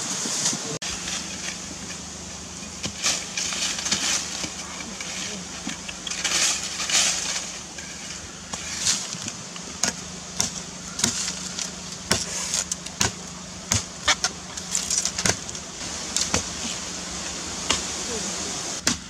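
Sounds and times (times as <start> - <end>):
knife chopping into soil: 12.1 - 14.2.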